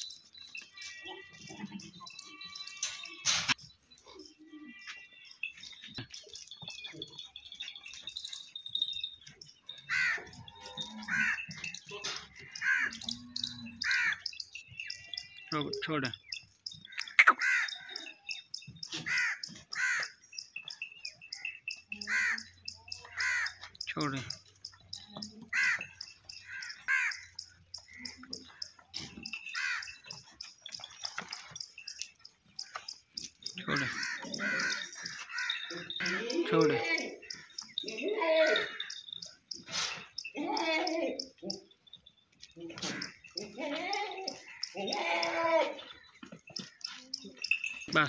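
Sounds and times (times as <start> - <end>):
low yard background noise: 0.0 - 48.0
harsh caw-like animal calls: 9.9 - 10.3, 12.3 - 13.1, 13.8 - 14.3, 16.9 - 18.1, 19.0 - 20.2, 23.1 - 23.6, 25.5 - 27.3, 29.4 - 30.0, 33.7 - 36.1, 42.8 - 43.2
crows cawing: 9.9 - 10.4, 11.0 - 13.2, 13.8 - 14.4, 16.8 - 18.2, 18.9 - 20.2, 22.0 - 23.8, 25.5 - 30.2, 33.5 - 36.4, 38.4 - 39.2, 42.8 - 43.6, 44.2 - 47.5.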